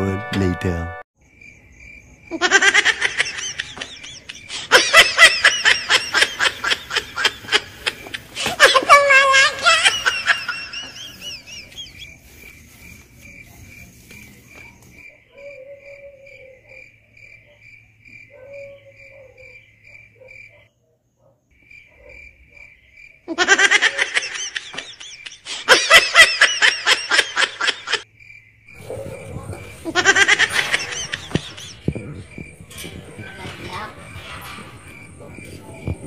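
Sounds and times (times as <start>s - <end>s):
crickets chirping: 1.2s - 36.0s
loud laughter: 2.3s - 12.1s, 23.3s - 28.1s, 29.6s - 32.3s.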